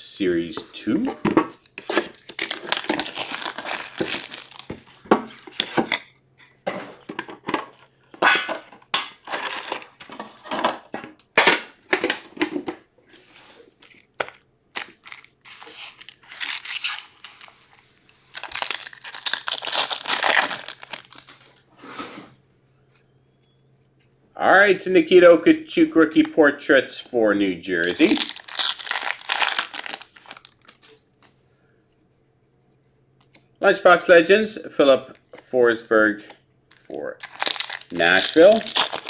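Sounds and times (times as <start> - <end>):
wrappers crinkling and tearing: 1.9 - 4.8, 9.2 - 10.0, 13.8 - 21.6, 27.8 - 31.3, 36.7 - 39.0.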